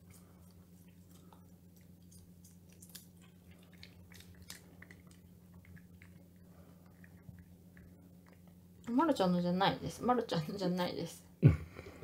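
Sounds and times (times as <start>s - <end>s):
cat chewing a treat: 0.0s - 8.7s.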